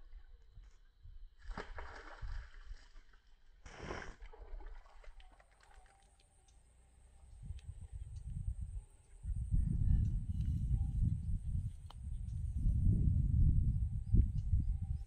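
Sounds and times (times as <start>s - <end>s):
water splashing: 1.4s - 6.3s.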